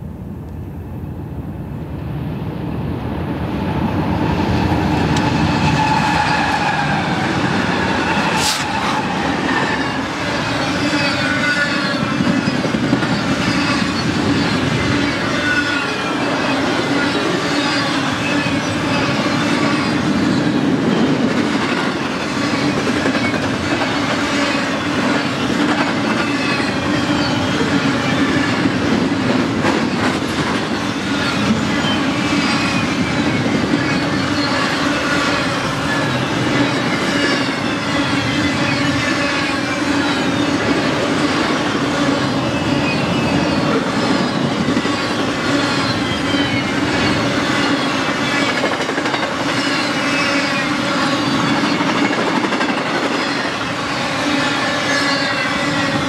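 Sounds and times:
diesel locomotives passing: 0.0s - 56.0s
train cars rolling rumble: 0.5s - 56.0s
wheels squealing: 4.5s - 21.1s, 29.7s - 52.2s.

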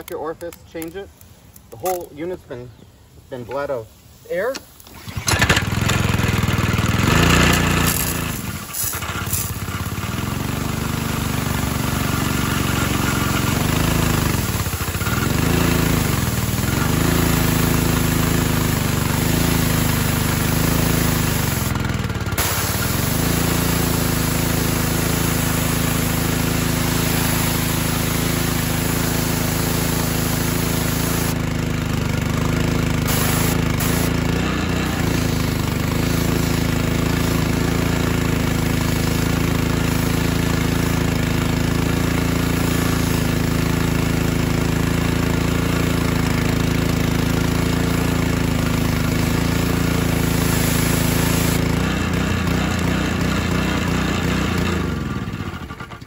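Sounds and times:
high-pressure water spray hissing: 4.1s - 54.9s
small gas engine running: 4.3s - 56.0s.

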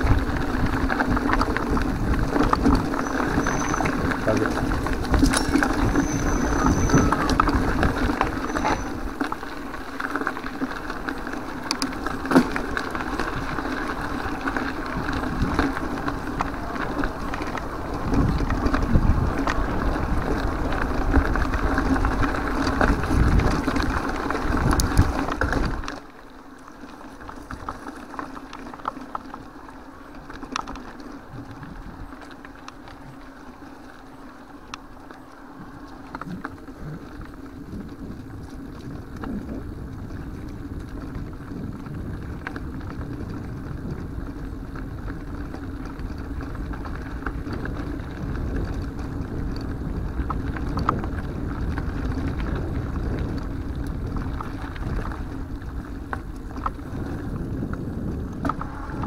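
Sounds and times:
wind: 0.0s - 59.0s
bike knocks and rattles: 11.6s - 13.7s.

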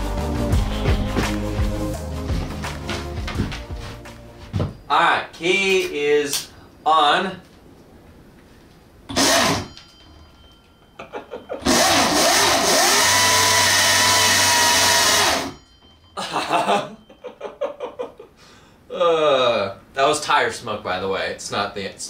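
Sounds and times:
man laughing: 11.0s - 11.8s, 16.2s - 19.5s
electric motor whine: 11.6s - 15.6s.

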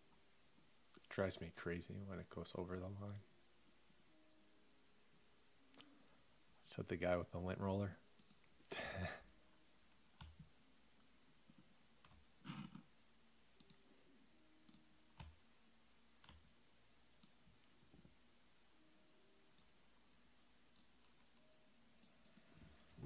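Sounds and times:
faint clicks: 13.6s - 13.8s.

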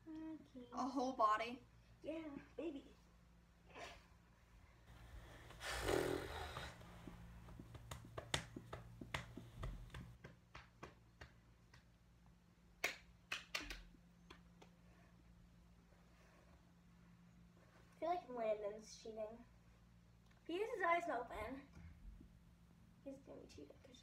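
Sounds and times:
drawing tools tapping on paper: 7.0s - 11.8s.

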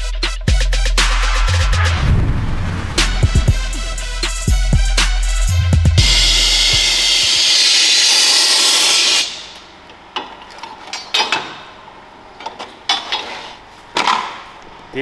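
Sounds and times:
tools clicking and knocking: 10.2s - 11.6s.

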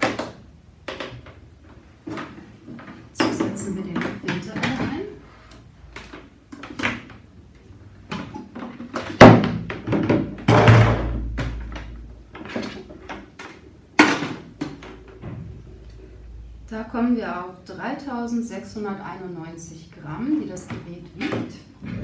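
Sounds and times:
machine knocks and thuds: 9.1s - 12.6s, 14.0s - 15.8s.

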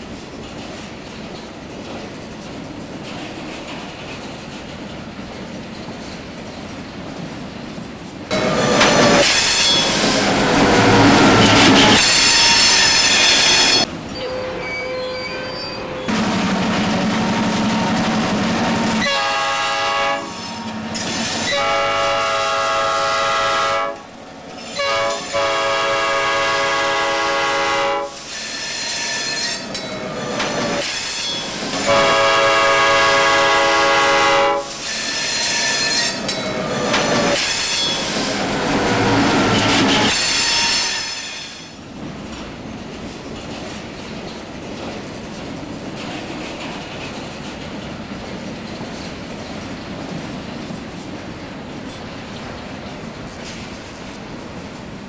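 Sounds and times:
freight train wheel and rail noise: 0.0s - 55.0s
locomotive horn blasts: 11.8s - 16.1s, 19.0s - 20.8s, 21.4s - 24.1s, 24.8s - 28.2s, 31.8s - 34.7s.

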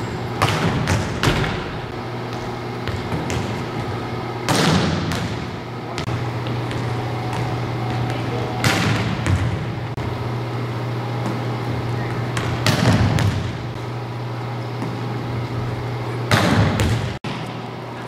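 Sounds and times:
steady low hum: 0.0s - 18.0s
volleyball being hit: 0.4s - 3.8s, 4.4s - 7.6s, 12.3s - 13.7s, 16.3s - 17.4s.

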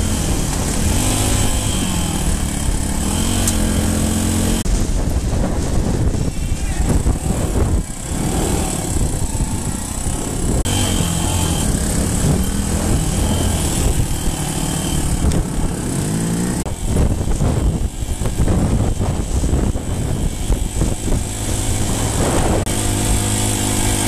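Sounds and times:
dirt bike engine revving: 0.0s - 4.8s, 5.4s - 24.0s
rough noisy rush: 0.0s - 24.0s.

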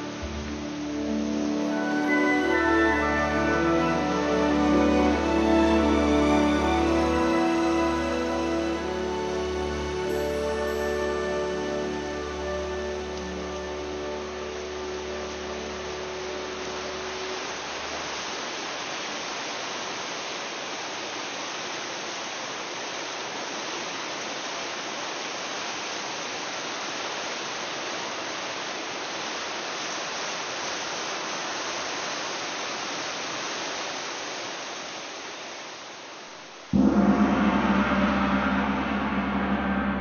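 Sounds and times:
gong-like chord: 0.0s - 17.0s, 36.7s - 40.0s
rain hissing: 0.0s - 40.0s.

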